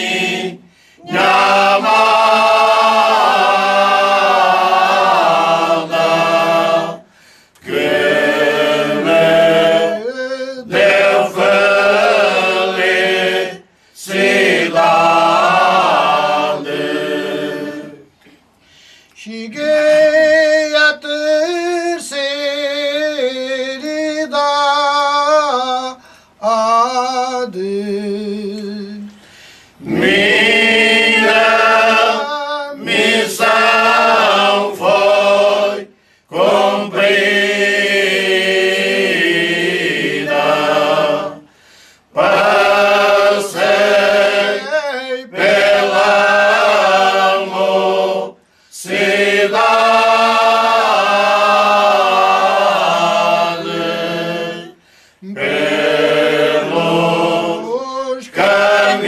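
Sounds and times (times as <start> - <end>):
unaccompanied folk choir singing: 0.0 - 18.2, 29.8 - 59.0.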